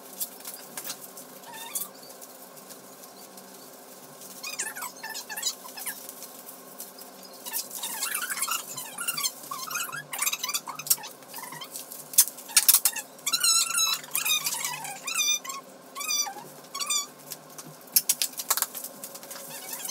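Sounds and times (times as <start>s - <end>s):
plastic bags crackling: 0.0s - 15.1s, 16.2s - 19.9s
small dog whining and yipping: 7.8s - 11.7s, 13.3s - 17.1s.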